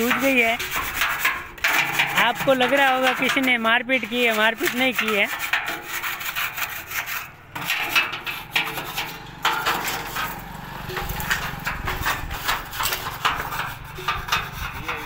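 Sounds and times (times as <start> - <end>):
hand sanding on steel panels: 0.0 - 15.0
low engine hum: 9.1 - 14.1.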